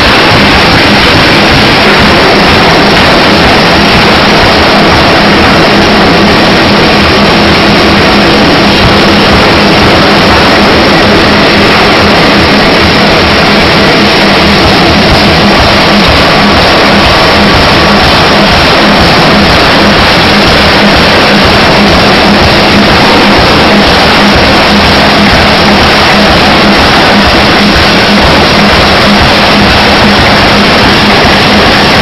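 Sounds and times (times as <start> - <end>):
distorted forging hammer din: 0.0 - 32.0
low hum: 0.0 - 32.0.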